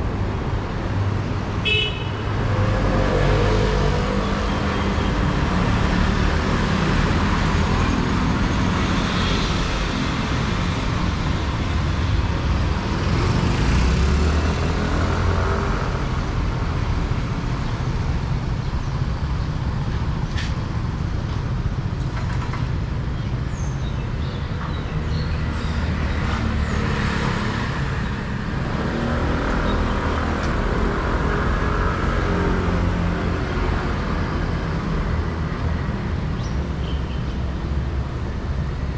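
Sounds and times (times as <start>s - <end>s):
scooter and car engines passing: 25.0s - 36.4s.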